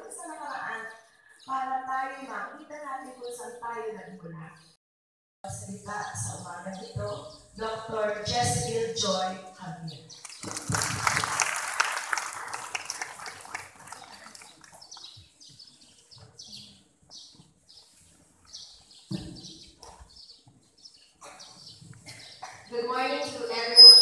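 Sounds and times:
audience applauding: 0:10.3 - 0:14.9
bird chirps: 0:23.6 - 0:24.0.

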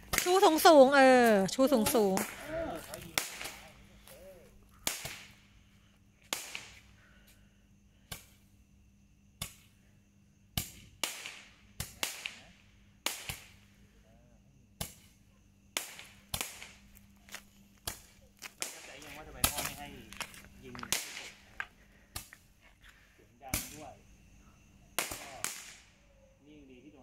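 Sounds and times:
firework tube popping: 0:00.0 - 0:00.6, 0:01.9 - 0:03.7, 0:04.7 - 0:05.4, 0:06.2 - 0:06.9, 0:10.6 - 0:12.4, 0:13.0 - 0:13.6, 0:14.8 - 0:17.0, 0:17.8 - 0:22.5, 0:25.0 - 0:25.9.

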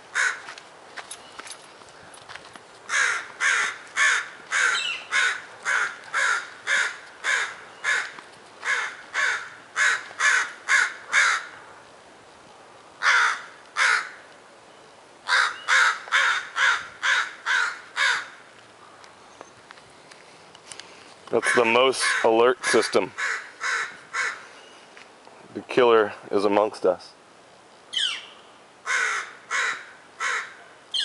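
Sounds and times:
corvid harsh alarm calls: 0:02.9 - 0:11.5, 0:21.4 - 0:24.7.

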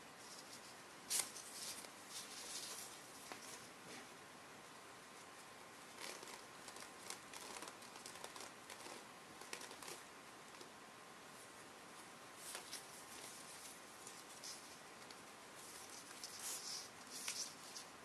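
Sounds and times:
paper slinky rustling and clicking: 0:00.2 - 0:04.0, 0:05.9 - 0:10.7, 0:12.4 - 0:18.0.

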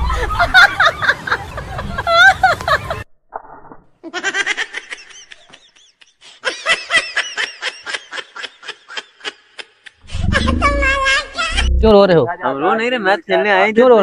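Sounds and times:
high-pitched laughing bursts: 0:07.8 - 0:11.9.

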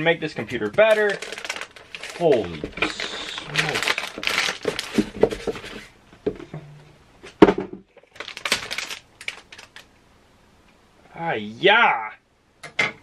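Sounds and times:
plastic bag crinkling: 0:00.4 - 0:05.9, 0:08.0 - 0:09.9.

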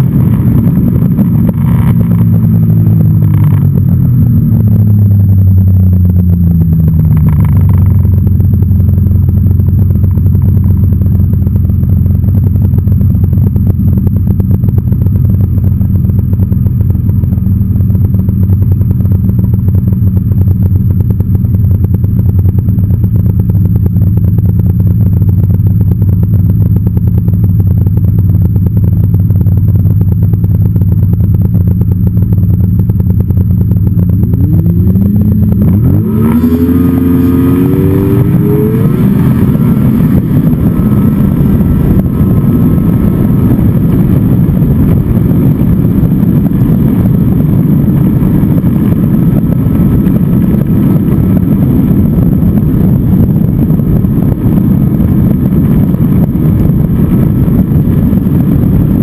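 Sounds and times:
snowmobile engine winding down: 0:34.2 - 0:55.8.

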